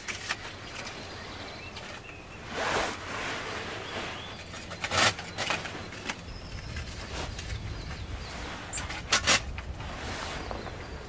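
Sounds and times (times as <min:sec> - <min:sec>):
kindling rustling: 0:00.0 - 0:02.1, 0:04.3 - 0:09.9.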